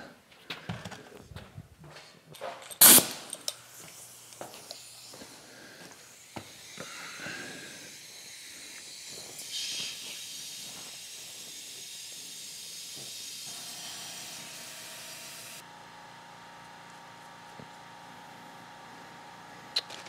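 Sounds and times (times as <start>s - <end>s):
compressed air hissing: 2.8s - 15.6s
steady tonal hum: 3.6s - 12.8s.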